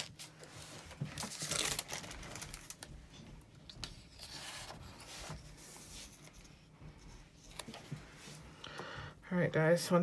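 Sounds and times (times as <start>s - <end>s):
pages rustling: 0.0s - 3.0s, 3.6s - 8.4s
wax paper crinkling: 0.0s - 6.6s.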